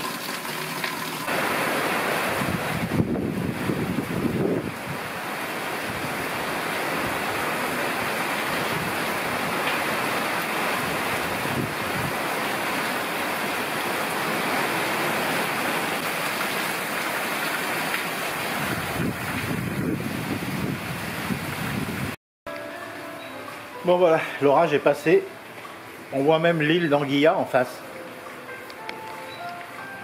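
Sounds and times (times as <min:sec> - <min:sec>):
heavy rain pouring: 0:01.2 - 0:22.2.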